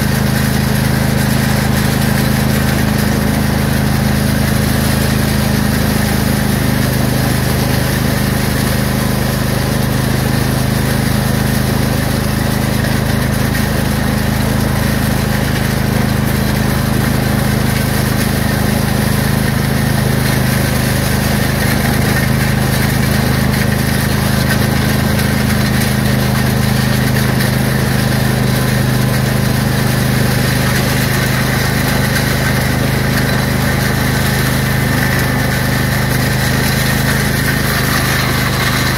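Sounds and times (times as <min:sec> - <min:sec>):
land plane over gravel: 0:00.0 - 0:38.9
lawn tractor engine running: 0:00.0 - 0:38.9.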